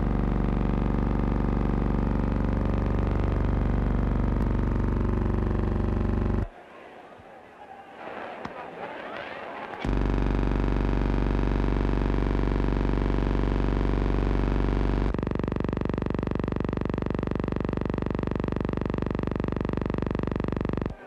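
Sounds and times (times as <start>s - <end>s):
deep electronic buzz: 0.0s - 6.5s, 9.8s - 21.0s.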